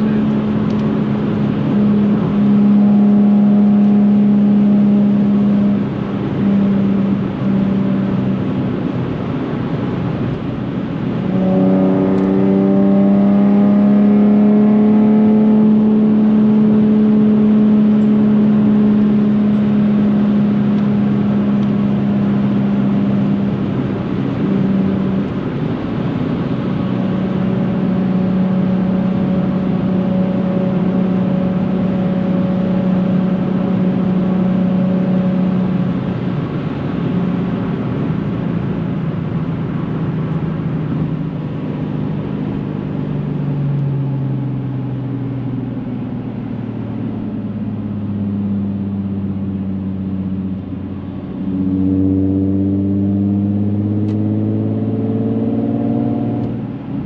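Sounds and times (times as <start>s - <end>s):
car exhaust note from cabin: 11.1s - 12.9s.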